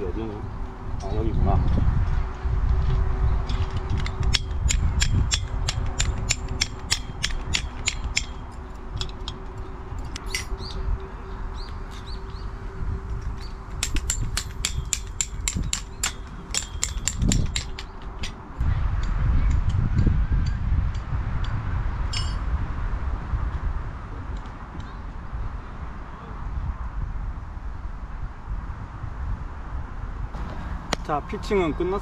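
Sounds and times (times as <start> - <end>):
wind on microphone: 0.0 - 32.0
bird chirps: 10.2 - 12.6.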